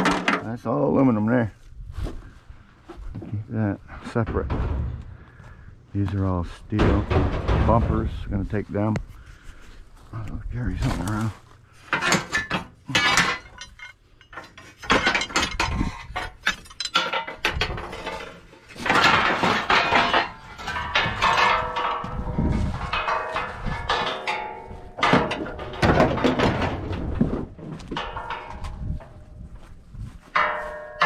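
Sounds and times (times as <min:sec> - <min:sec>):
scrap steel clanking and scraping: 0:00.0 - 0:31.0
ringing metallic clangs: 0:04.1 - 0:05.5, 0:11.9 - 0:27.2, 0:27.8 - 0:31.0.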